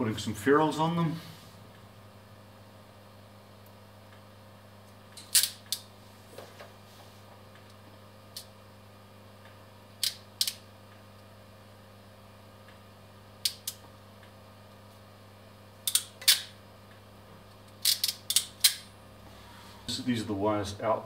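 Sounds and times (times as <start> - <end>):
steady low hum: 0.0 - 21.0
crimping tool ratchet snapping: 17.8 - 18.8.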